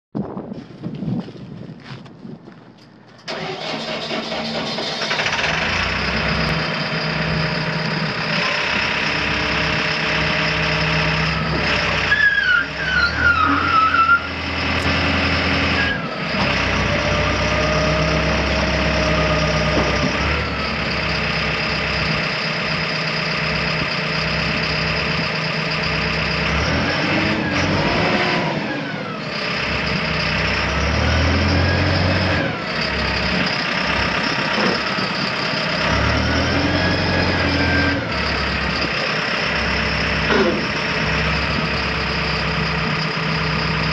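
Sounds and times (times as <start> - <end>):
diesel engine running: 3.1 - 43.9
wavering high squeal: 12.1 - 14.8.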